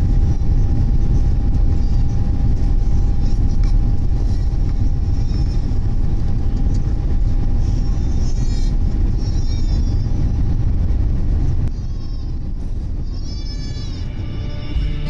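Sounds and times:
aircraft cabin rumble: 0.0s - 15.0s
faint wavering high tones: 13.8s - 15.0s.

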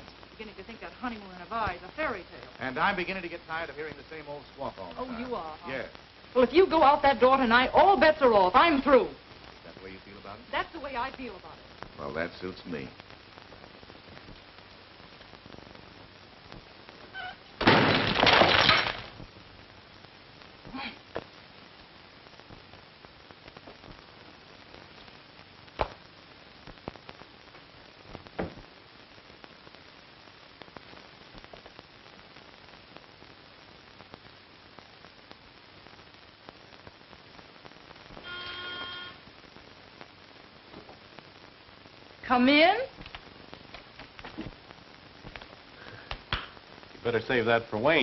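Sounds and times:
faint clicks and crackles: 0.0s - 6.3s, 9.2s - 48.0s
film soundtrack hiss: 0.0s - 48.0s
breakable object shattering: 17.6s - 19.2s.

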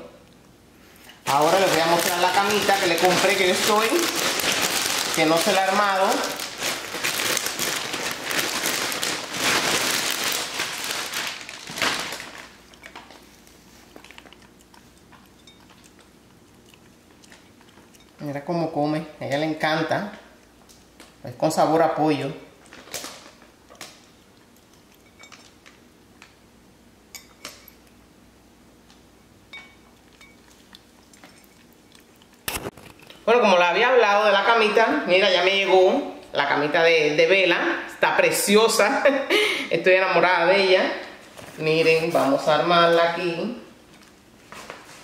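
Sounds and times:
plastic wrapping crinkling: 1.2s - 14.6s, 22.6s - 24.6s
puppy food clinking bowl: 14.1s - 18.4s, 24.8s - 25.6s, 29.5s - 32.1s.

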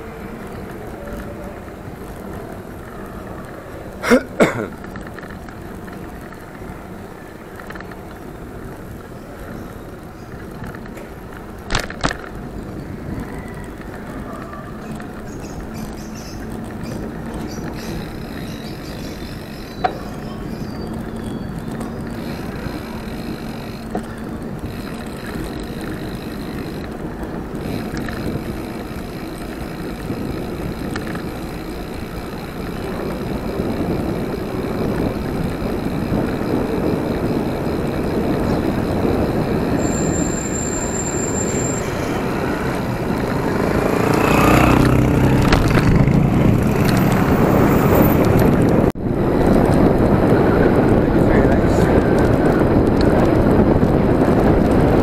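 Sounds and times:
bicycle wind and tyre noise: 0.0s - 55.0s
sharp clicks: 27.6s - 36.4s.

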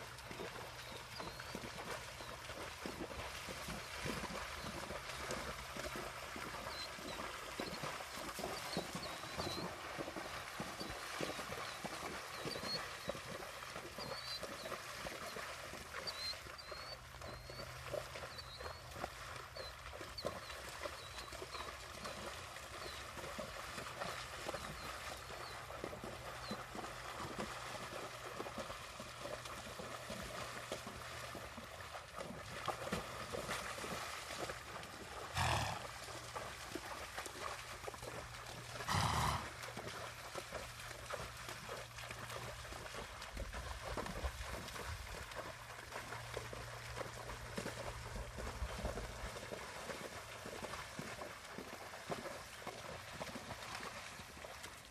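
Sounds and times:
horse hooves splashing in water: 0.0s - 54.9s.

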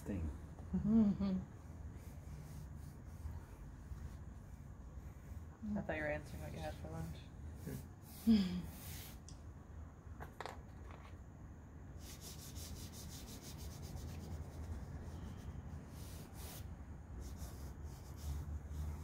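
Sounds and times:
pastel scratching on paper: 1.9s - 9.2s, 12.0s - 19.0s.

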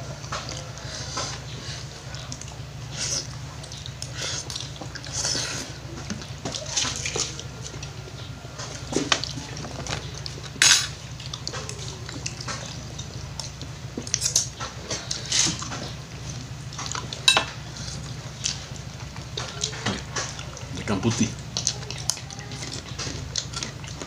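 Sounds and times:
steady low hum: 0.0s - 24.0s
cutlery clinking and scraping: 10.6s - 11.0s, 17.3s - 17.6s.

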